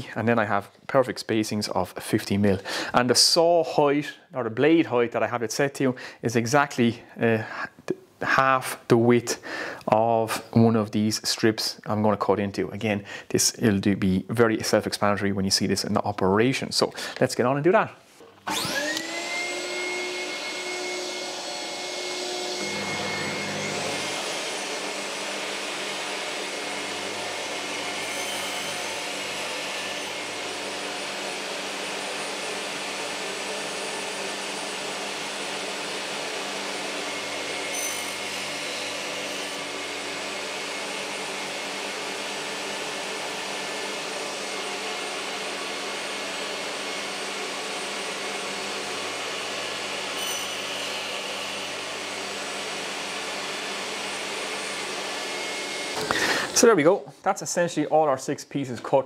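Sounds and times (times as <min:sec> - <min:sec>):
table saw whine: 0:18.3 - 0:56.8.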